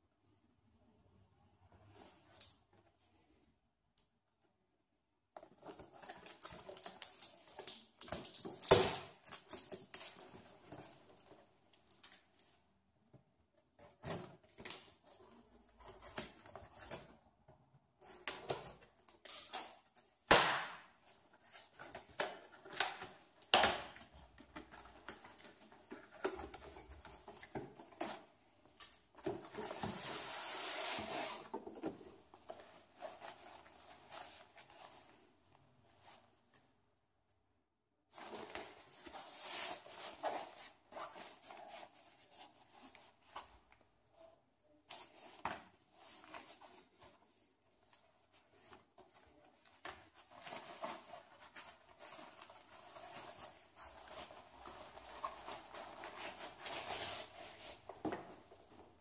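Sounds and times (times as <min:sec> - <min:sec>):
cardboard rustling and scraping: 0:29.0 - 0:35.3, 0:38.1 - 0:43.7, 0:44.9 - 0:59.0.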